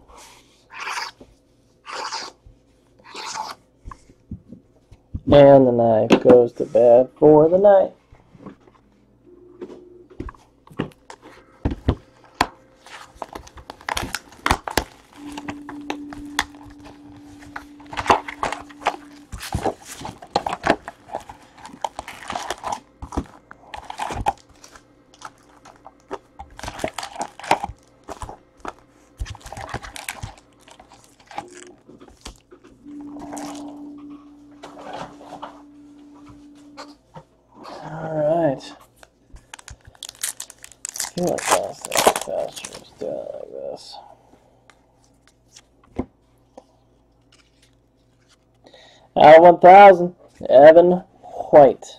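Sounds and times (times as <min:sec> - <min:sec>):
card packs rustling: 0:10.8 - 0:36.4, 0:38.8 - 0:43.9
plastic wrap crinkling and tearing: 0:12.8 - 0:15.5, 0:16.2 - 0:32.6, 0:39.4 - 0:43.2.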